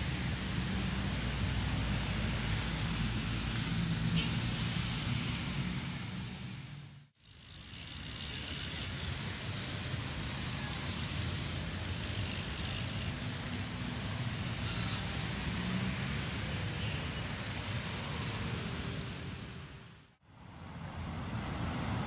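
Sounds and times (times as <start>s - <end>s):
road traffic: 0.0s - 22.0s.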